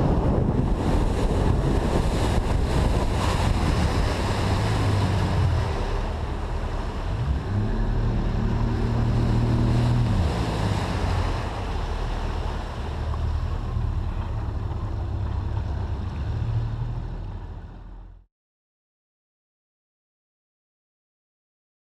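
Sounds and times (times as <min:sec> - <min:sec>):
wind on microphone: 0:00.0 - 0:17.1
outboard motor running: 0:00.0 - 0:18.2
water rushing along hull: 0:00.0 - 0:18.2.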